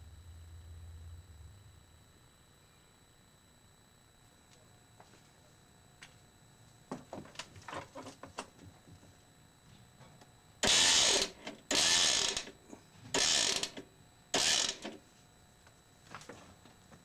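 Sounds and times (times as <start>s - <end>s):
cable winch winding: 10.6s - 12.5s, 13.1s - 13.8s, 14.4s - 15.0s.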